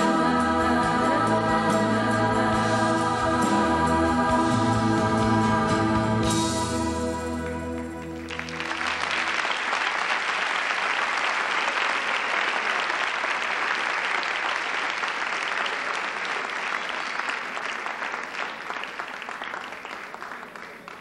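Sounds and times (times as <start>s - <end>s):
choir singing low note: 0.0s - 9.3s
audience applauding: 7.4s - 21.0s.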